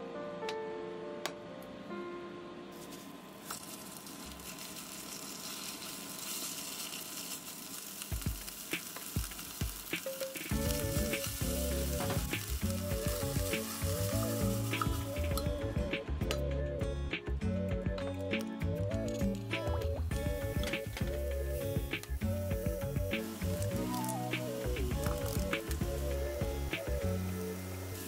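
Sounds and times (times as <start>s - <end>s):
background music: 0.0s - 3.3s, 9.6s - 28.0s
shrimp sizzling in hot oil: 2.8s - 15.8s, 20.1s - 28.0s.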